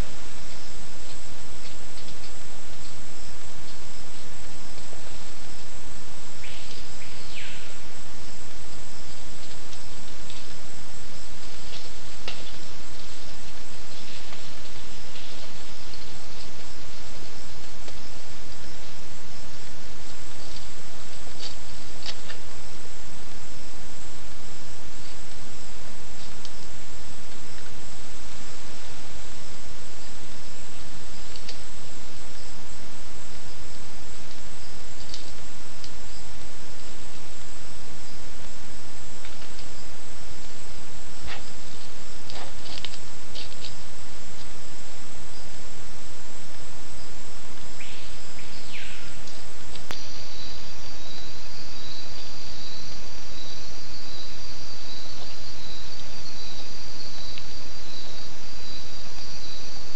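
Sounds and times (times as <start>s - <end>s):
crickets chirring: 0.0s - 59.9s
steady hiss: 0.0s - 59.9s
faint clicks: 31.3s - 31.6s, 34.2s - 36.5s, 49.2s - 50.1s.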